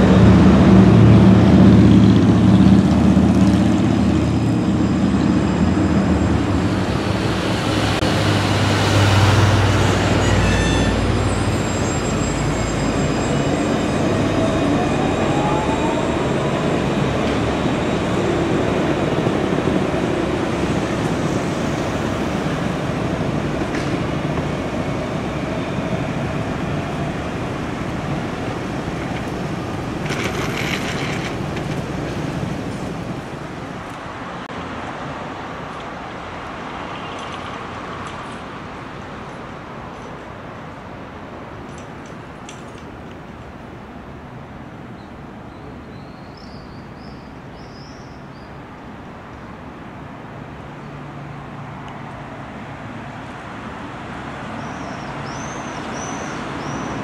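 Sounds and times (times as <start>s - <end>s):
street traffic: 0.0s - 57.0s
tram motors whining: 2.1s - 33.6s.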